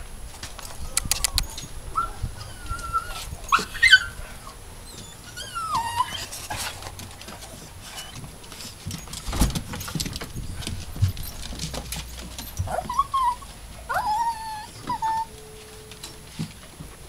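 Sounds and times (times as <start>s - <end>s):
dog yipping: 0.9s - 4.2s, 12.6s - 15.6s
small dogs whining: 0.9s - 6.7s, 12.4s - 16.2s
sharp clicks: 1.0s - 1.5s.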